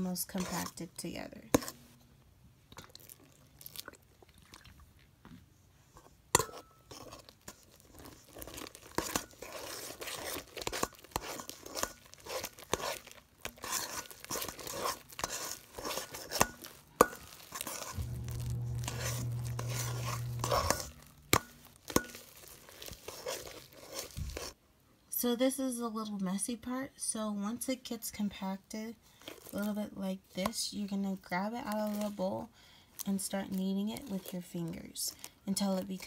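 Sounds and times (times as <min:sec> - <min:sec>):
slime squelching: 0:02.7 - 0:05.2, 0:06.9 - 0:24.6, 0:29.2 - 0:36.0
low steady hum: 0:16.6 - 0:22.2.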